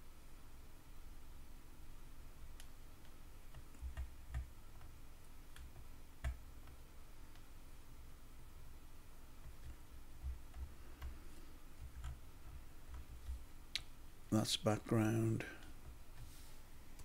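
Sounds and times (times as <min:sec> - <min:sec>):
computer mouse clicking: 0:02.5 - 0:07.5, 0:09.4 - 0:11.2, 0:11.8 - 0:12.2.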